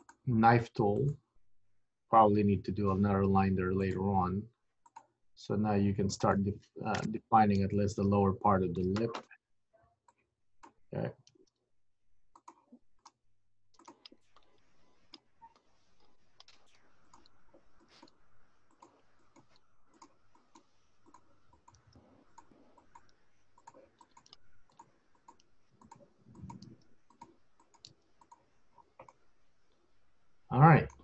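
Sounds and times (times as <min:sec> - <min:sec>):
computer mouse clicks: 0:04.8 - 0:05.2, 0:12.3 - 0:29.8.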